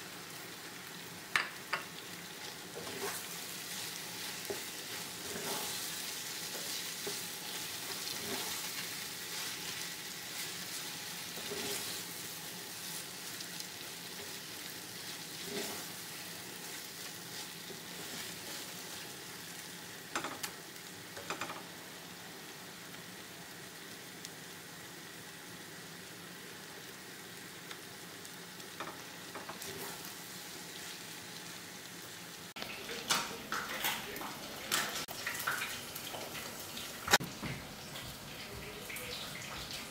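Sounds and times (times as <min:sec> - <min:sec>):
food sizzling in a pan: 0:00.0 - 0:39.9
wooden spatula scraping pan: 0:02.7 - 0:12.1, 0:14.1 - 0:19.1.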